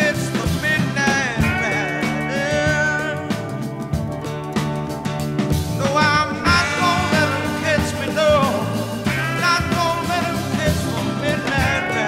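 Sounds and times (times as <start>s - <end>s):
song with bass and beat: 0.0s - 12.0s.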